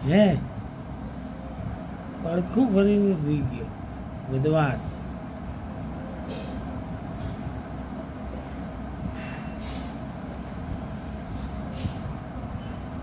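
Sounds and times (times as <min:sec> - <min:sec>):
low mechanical rumble: 0:00.0 - 0:13.0
steady hum: 0:00.0 - 0:13.0
short soft hisses: 0:09.1 - 0:10.1.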